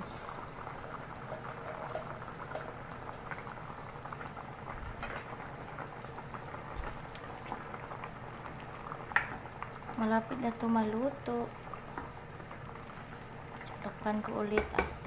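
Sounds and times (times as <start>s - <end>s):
broth boiling and bubbling: 0.0s - 15.0s.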